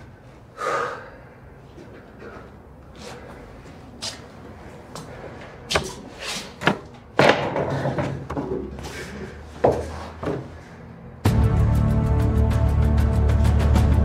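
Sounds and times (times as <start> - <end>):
tense background music: 11.2 - 14.0.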